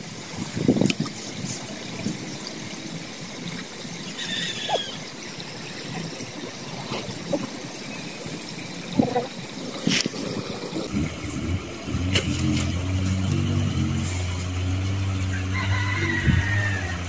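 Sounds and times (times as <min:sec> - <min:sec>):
steady hiss: 0:00.0 - 0:11.4
water trickling: 0:00.0 - 0:17.0.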